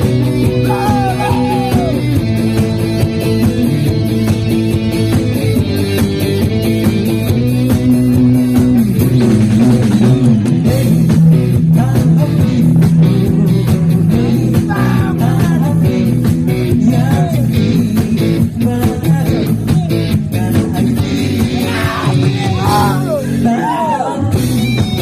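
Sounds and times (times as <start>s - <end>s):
rock band playing: 0.0s - 25.0s
man singing into microphone: 10.6s - 24.5s.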